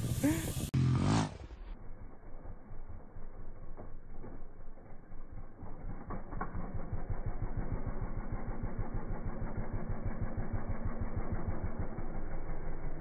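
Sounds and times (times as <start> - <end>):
motorbike engine idling: 0.0 - 0.8, 1.5 - 13.0.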